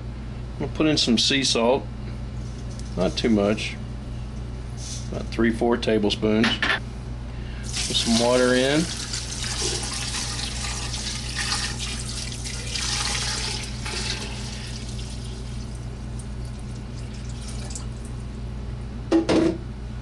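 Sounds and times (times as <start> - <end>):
water pouring into a pot: 7.6 - 18.2
sharp clunk: 19.1 - 19.6.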